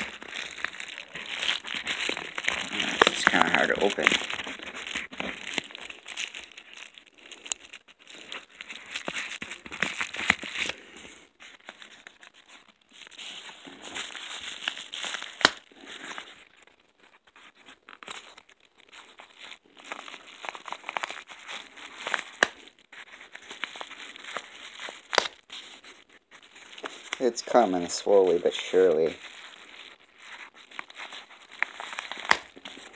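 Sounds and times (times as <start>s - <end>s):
paper envelope tearing and crinkling: 0.0s - 32.9s.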